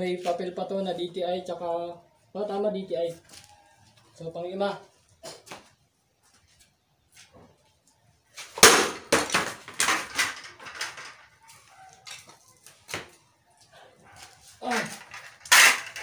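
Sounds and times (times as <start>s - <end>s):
plastic helmet crashing: 8.5s - 11.3s, 14.8s - 16.0s
knocks and rattles: 8.6s - 11.4s.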